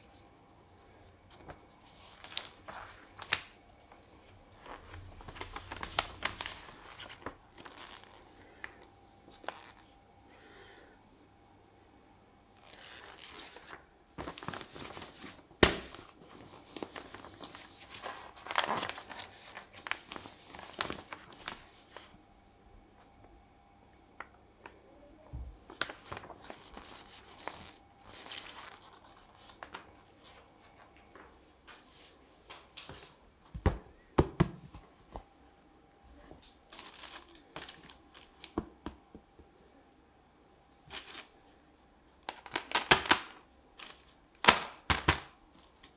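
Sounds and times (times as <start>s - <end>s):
paper rustling and crinkling: 1.3s - 10.0s, 12.6s - 22.2s, 25.5s - 33.2s, 36.4s - 38.6s.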